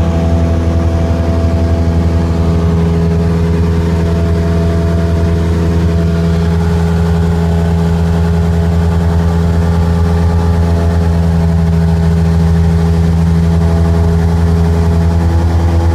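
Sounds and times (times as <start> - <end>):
propeller plane engine droning: 0.0 - 15.9.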